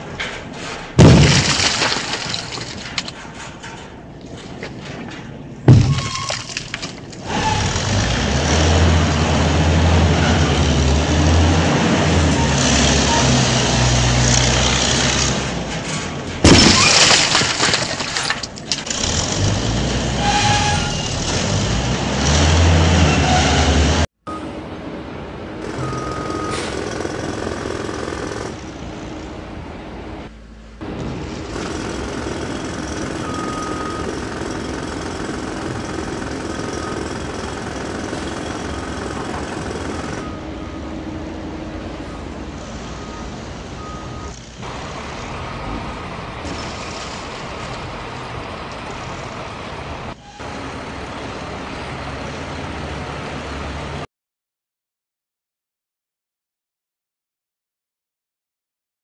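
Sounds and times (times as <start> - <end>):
construction site noise: 0.0 - 54.1
crashing concrete and rubble: 0.9 - 7.2, 15.8 - 19.0.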